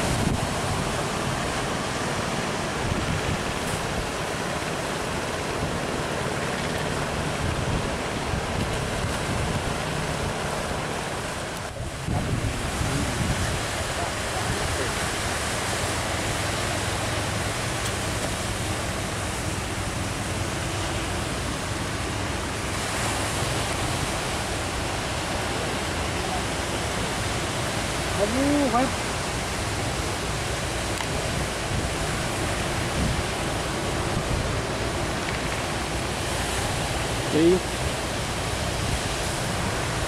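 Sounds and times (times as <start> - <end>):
ocean surf breaking: 0.0 - 40.0
wind buffeting microphone: 0.0 - 40.0.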